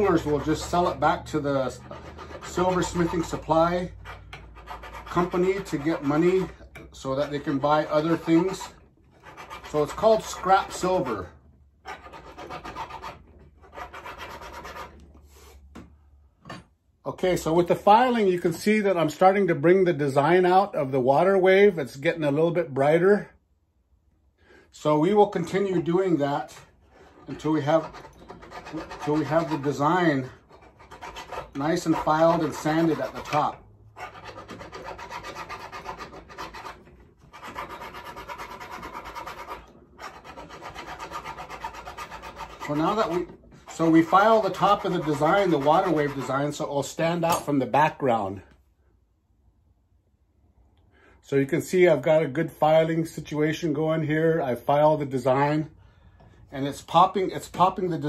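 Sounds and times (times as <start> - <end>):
hand file rasping on metal: 0.0 - 15.6, 24.8 - 47.5.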